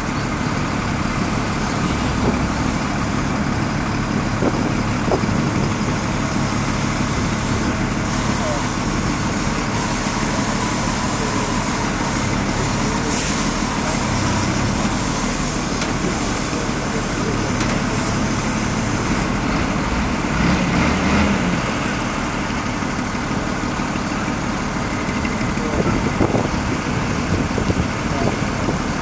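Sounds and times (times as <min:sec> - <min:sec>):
diesel truck engine running: 0:00.0 - 0:29.0
air hiss: 0:13.1 - 0:13.7.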